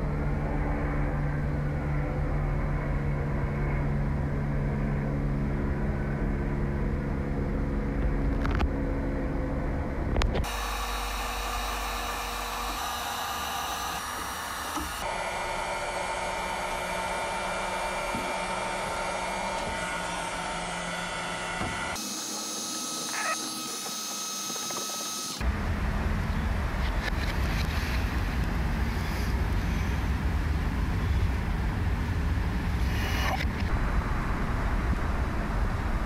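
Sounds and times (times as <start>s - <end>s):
low machine hum: 0.0s - 36.0s
heat gun blowing hot air: 10.4s - 25.4s.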